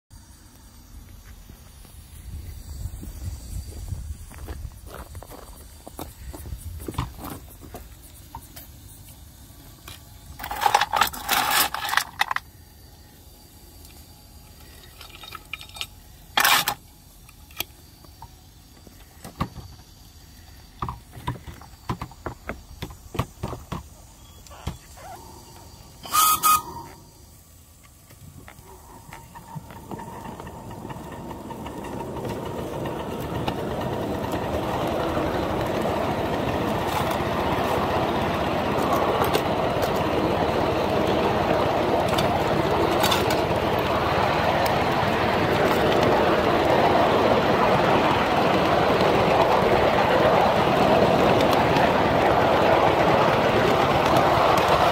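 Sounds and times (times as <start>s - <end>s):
model train running on track: 0.2s - 54.9s
steam hiss bursts: 25.0s - 30.3s
steam whistle: 25.4s - 27.2s.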